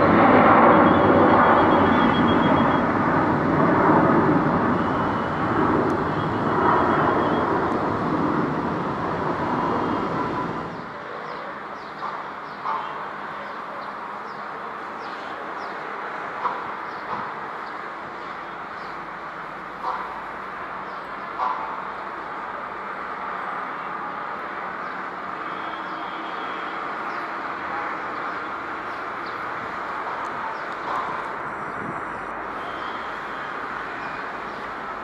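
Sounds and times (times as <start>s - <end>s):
jet engine roar: 0.0s - 12.5s, 14.8s - 35.0s
outdoor background noise: 0.0s - 35.0s.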